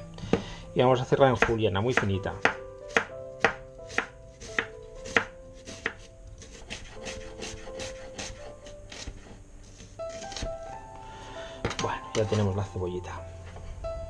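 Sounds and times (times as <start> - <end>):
knife chopping on wooden board: 1.4 - 9.3, 10.1 - 10.5.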